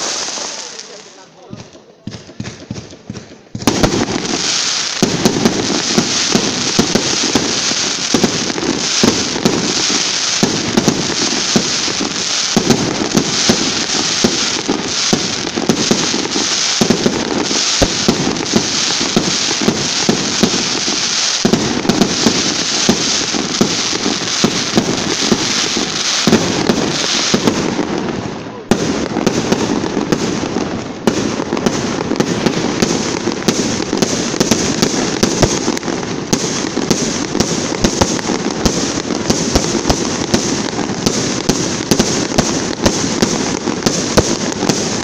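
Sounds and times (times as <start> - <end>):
fireworks thuds: 0.0 - 28.0
fireworks crackling pops: 0.0 - 45.0.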